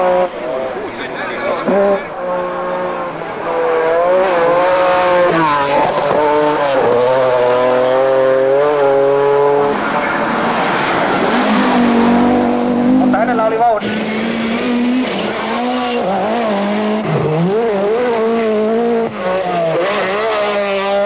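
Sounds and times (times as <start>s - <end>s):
rally car engine at full throttle: 0.0s - 21.0s.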